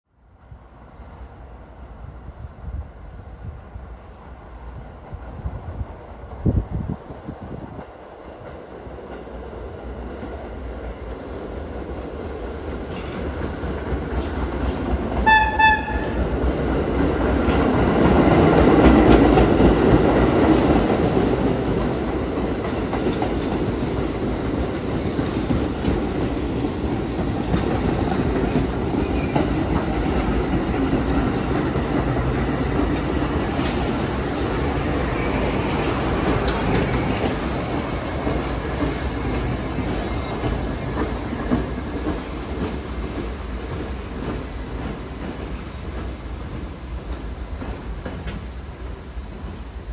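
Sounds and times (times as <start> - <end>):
subway train passing: 0.2 - 49.9
train horn blast: 15.2 - 16.3.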